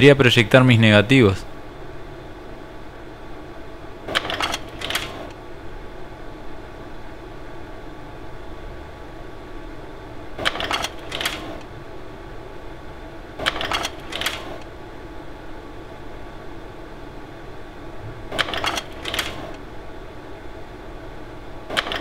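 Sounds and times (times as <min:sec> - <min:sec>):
projector whirring: 0:00.0 - 0:22.0.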